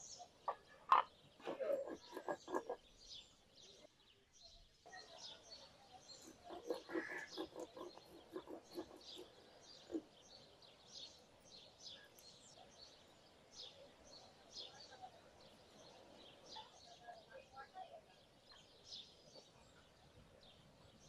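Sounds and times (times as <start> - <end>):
small birds chirping: 0.0 - 21.0
stone roller grinding on slab: 1.4 - 2.8, 6.3 - 9.3.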